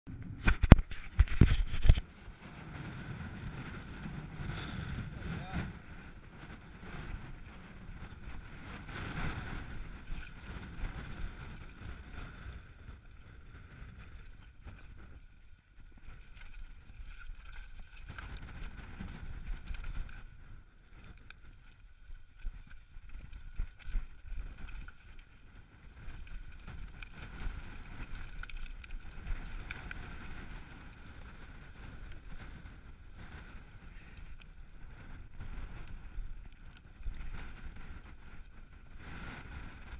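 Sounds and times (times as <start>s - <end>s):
wind buffeting microphone: 0.1s - 39.9s
bike rattling over rocks: 6.4s - 32.6s.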